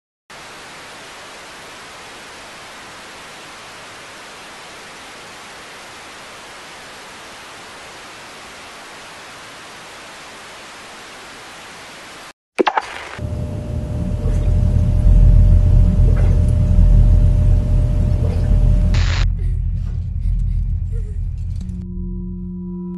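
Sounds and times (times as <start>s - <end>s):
static hiss: 0.4s - 13.2s, 18.9s - 19.3s.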